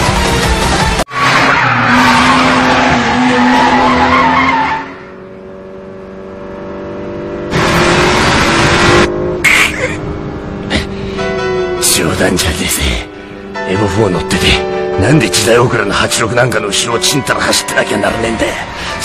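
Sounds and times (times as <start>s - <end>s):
tyres squealing: 1.1s - 5.0s
sports car engine: 1.2s - 15.9s.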